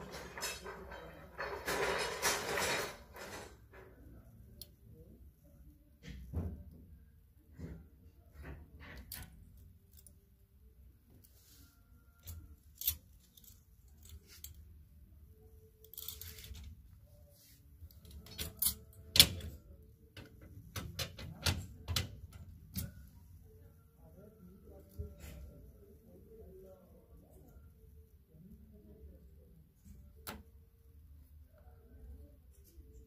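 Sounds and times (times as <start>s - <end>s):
clothes hangers clicking on metal bars: 12.2s - 14.6s, 15.8s - 16.7s, 17.9s - 19.6s.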